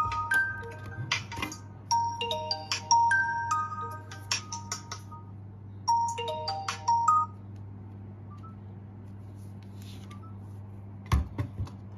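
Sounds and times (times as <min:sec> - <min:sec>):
low steady hum: 0:00.0 - 0:11.9.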